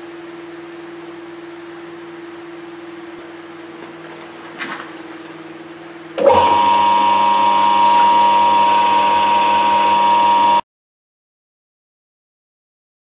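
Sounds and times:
metal lathe humming: 0:06.2 - 0:10.6
high-pitched cutting squeal: 0:06.4 - 0:10.6.

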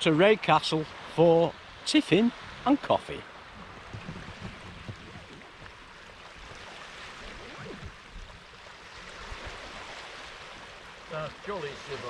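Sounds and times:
wind: 0:00.0 - 0:12.0
waves lapping on pebbles: 0:00.9 - 0:12.0
wind rumble on microphone: 0:03.5 - 0:10.4.

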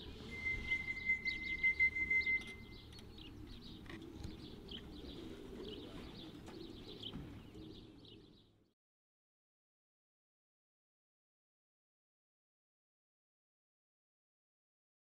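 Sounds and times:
small birds chirping: 0:00.0 - 0:08.8
steady high tone: 0:00.1 - 0:02.8.

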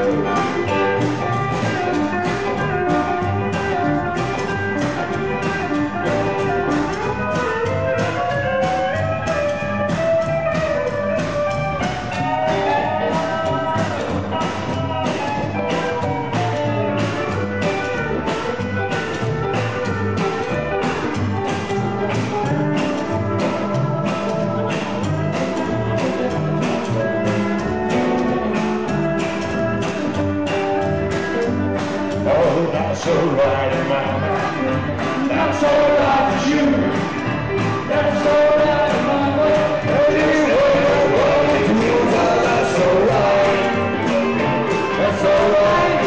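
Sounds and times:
rockabilly band instrumental: 0:00.0 - 0:46.0.

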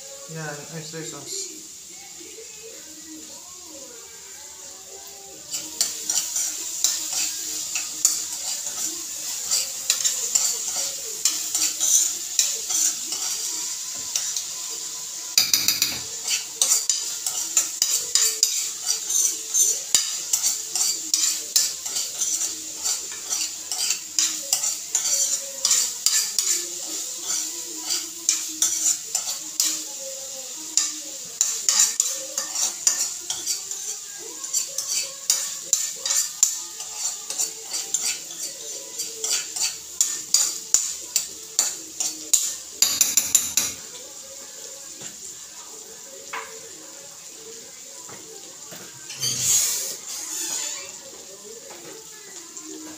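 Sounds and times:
food sizzling in a frying pan: 0:00.0 - 0:52.9
utensil scraping and tapping pan: 0:15.4 - 0:26.6, 0:42.3 - 0:43.9.

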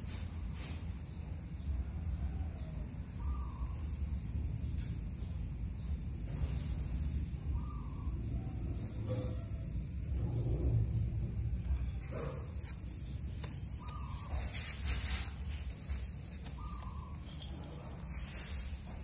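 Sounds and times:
crickets trilling: 0:00.0 - 0:19.0
low rumble: 0:09.0 - 0:13.4.

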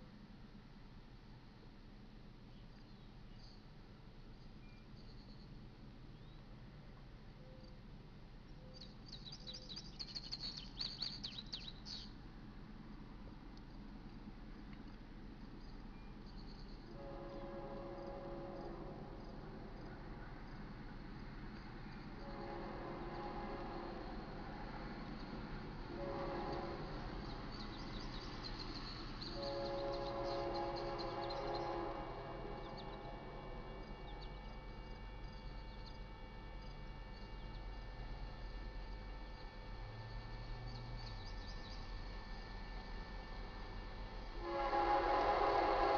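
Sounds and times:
faint low background noise: 0:00.0 - 0:45.9
songbird chirping: 0:07.4 - 0:12.3, 0:13.6 - 0:42.1
distant locomotive horn: 0:16.9 - 0:45.9.

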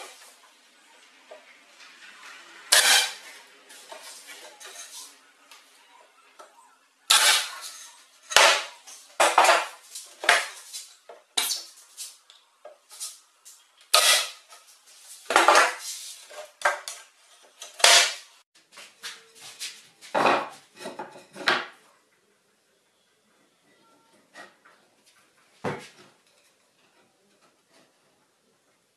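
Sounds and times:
wooden boards clattering on workbench: 0:08.3 - 0:10.6, 0:15.3 - 0:17.0, 0:20.1 - 0:21.8.

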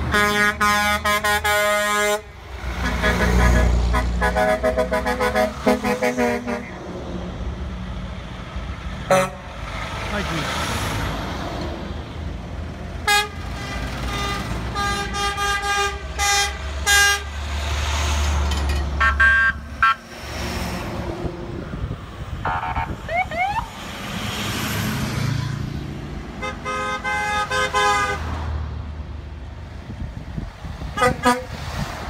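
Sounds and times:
truck horns blasting: 0:00.0 - 0:06.8, 0:09.0 - 0:09.6, 0:13.0 - 0:17.5, 0:18.9 - 0:20.2, 0:22.4 - 0:23.0, 0:26.3 - 0:28.4, 0:30.9 - 0:31.6
truck engines rumbling: 0:00.0 - 0:32.0.

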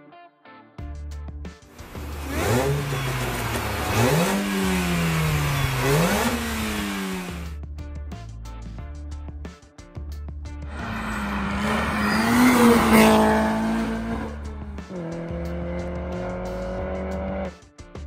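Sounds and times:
music: 0:00.0 - 0:18.0
car engine revving: 0:01.8 - 0:07.6, 0:10.7 - 0:17.5.

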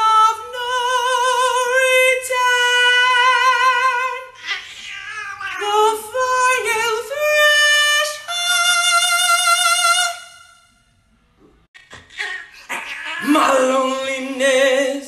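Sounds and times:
man singing high note: 0:13.2 - 0:15.0.

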